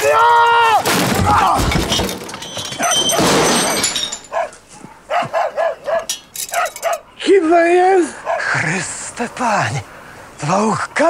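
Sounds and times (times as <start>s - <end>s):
dog yelping and barking: 2.7s - 3.3s, 4.3s - 7.3s, 8.2s - 8.6s.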